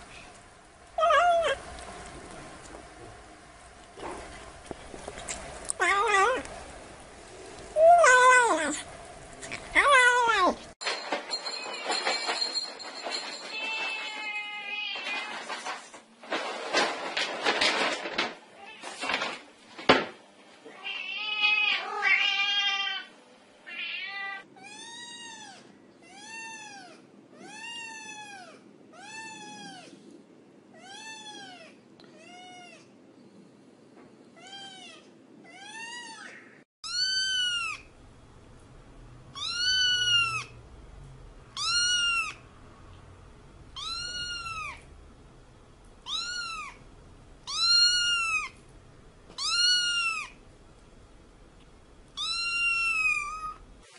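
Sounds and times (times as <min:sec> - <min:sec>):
cat meowing: 0:01.0 - 0:01.6, 0:20.7 - 0:29.9, 0:34.4 - 0:37.9, 0:39.3 - 0:40.5, 0:41.6 - 0:42.4, 0:43.8 - 0:44.8, 0:46.0 - 0:46.8, 0:47.4 - 0:48.6, 0:49.4 - 0:50.4, 0:52.2 - 0:53.6.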